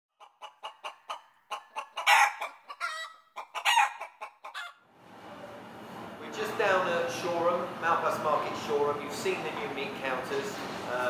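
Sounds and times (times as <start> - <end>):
chicken clucking: 0.2 - 4.8
chicken squawking: 0.2 - 4.8.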